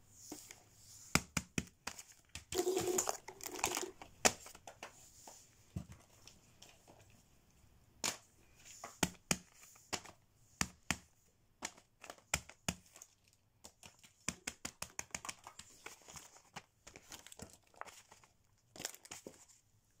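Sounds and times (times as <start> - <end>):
silicone toy clicks and taps: 13.8 - 15.7
paper crinkling: 15.2 - 19.6.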